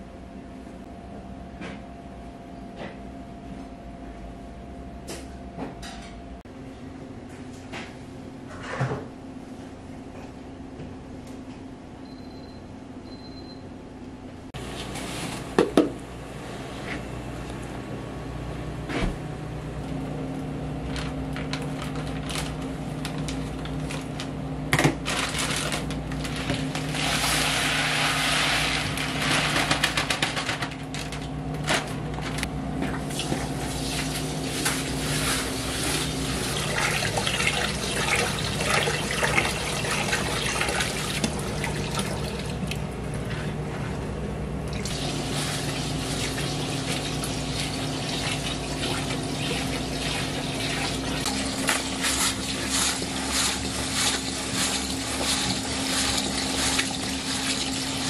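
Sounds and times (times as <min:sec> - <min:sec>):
rice stirred by hand: 0:26.3 - 0:30.3, 0:33.5 - 0:37.1, 0:44.9 - 0:58.0
rice pouring into bucket: 0:26.8 - 0:30.3, 0:44.9 - 0:58.0
tap water running: 0:32.9 - 0:42.9, 0:44.7 - 0:58.0.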